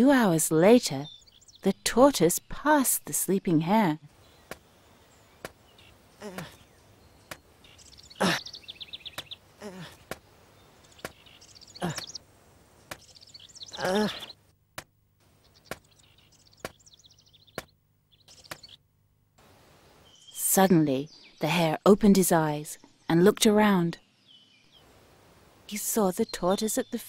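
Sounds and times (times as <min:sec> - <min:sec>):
birds chirping in short trills: 0:04.2 - 0:12.2.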